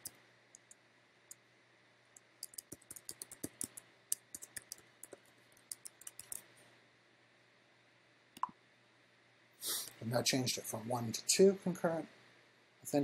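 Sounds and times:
keyboard typing: 0.0s - 0.8s, 2.4s - 6.5s.

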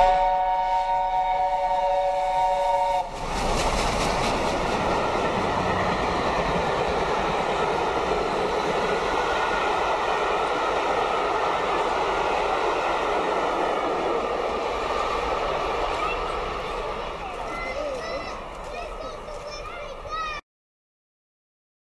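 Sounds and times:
steam locomotive chime whistle: 0.0s - 3.2s
train coaches rushing past: 0.0s - 20.4s.

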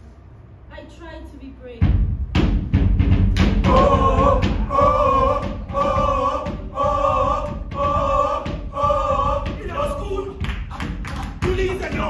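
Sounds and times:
voices singing a cappella: 3.6s - 12.0s.

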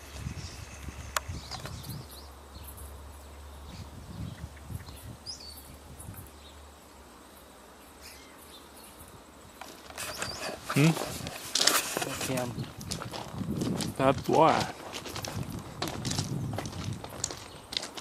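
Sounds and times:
bird chirps: 0.3s - 6.6s, 10.0s - 10.9s.

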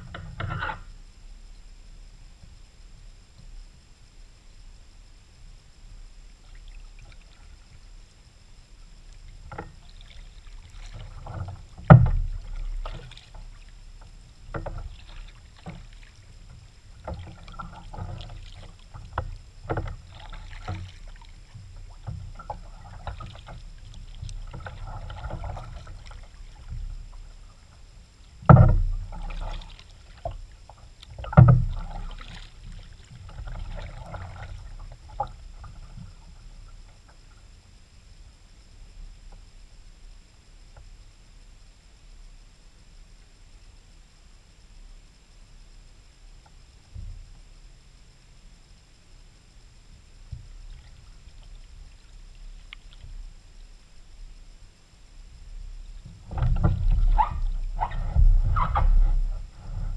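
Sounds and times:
paddle strokes splashing water: 8.8s - 37.5s, 50.2s - 54.8s, 55.4s - 59.9s.

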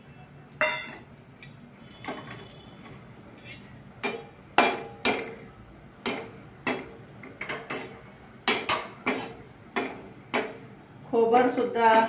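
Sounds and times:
steel spoon scraping a pan: 3.3s - 4.3s, 7.5s - 9.6s.

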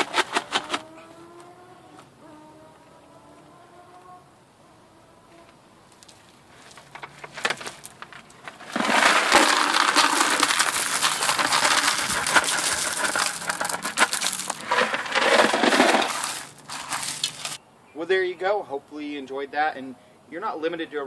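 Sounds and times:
gravel pouring onto gravel: 6.6s - 17.6s.

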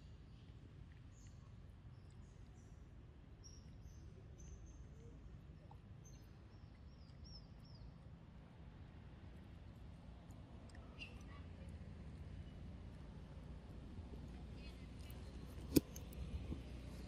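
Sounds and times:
low steady rumble: 8.1s - 17.0s.

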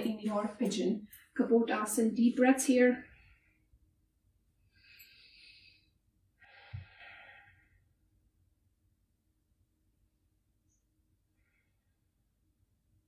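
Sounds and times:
woman breathing deeply: 4.6s - 8.0s.

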